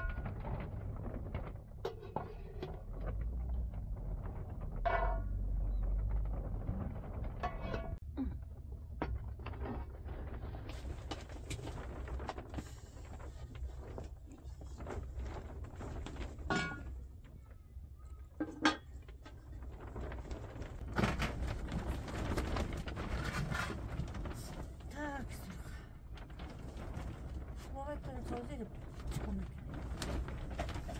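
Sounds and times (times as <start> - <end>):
low steady rumble: 0.0 - 30.9
metal basins and pot lid clinking: 16.5 - 16.9.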